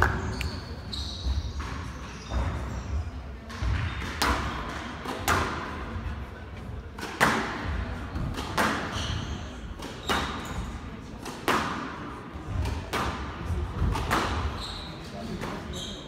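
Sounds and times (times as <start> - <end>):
squash racket striking ball: 3.5 - 6.0, 6.9 - 9.0, 9.8 - 14.6.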